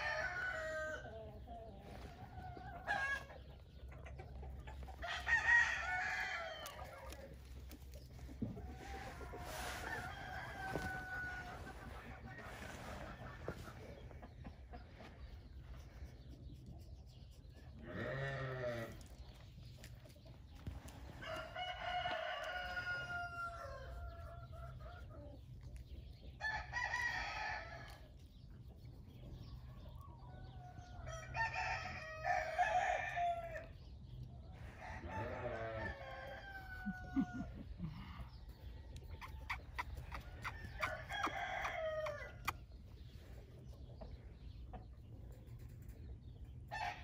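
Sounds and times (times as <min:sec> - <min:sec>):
roosters crowing: 0:00.0 - 0:01.2, 0:02.6 - 0:03.5, 0:04.9 - 0:07.4, 0:08.4 - 0:13.9, 0:17.8 - 0:19.0, 0:21.1 - 0:24.8, 0:30.6 - 0:33.8, 0:34.6 - 0:42.7, 0:46.7 - 0:47.0.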